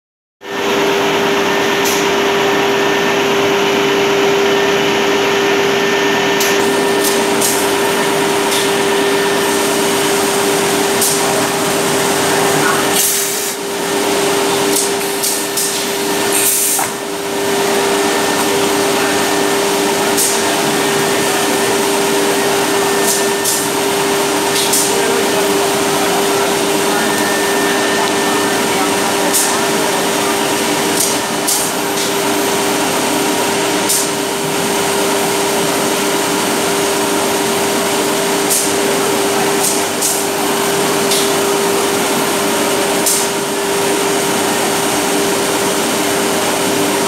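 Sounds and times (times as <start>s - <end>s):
loud machine noise: 0.4s - 47.0s
spindles whining: 17.4s - 30.8s.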